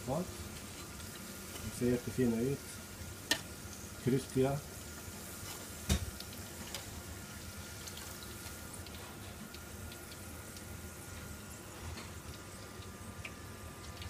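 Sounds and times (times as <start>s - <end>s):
faint hiss with crackles: 0.0s - 14.0s.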